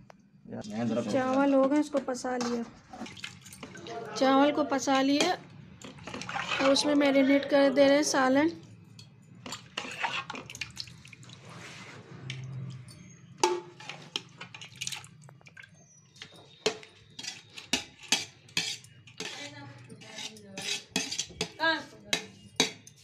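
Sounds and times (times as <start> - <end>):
metal spoon scraping aluminium pot: 5.1 - 7.2, 9.4 - 10.6, 13.0 - 14.7, 16.6 - 23.0.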